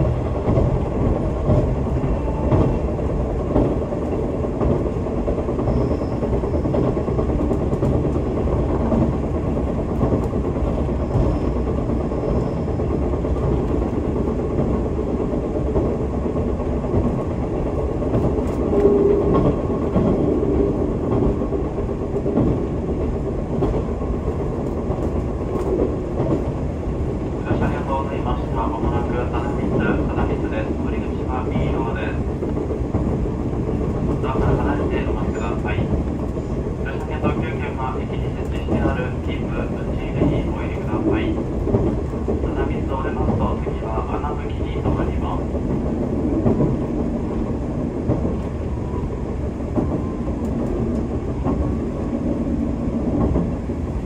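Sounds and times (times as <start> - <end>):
train wheels on rails: 0.0 - 54.0.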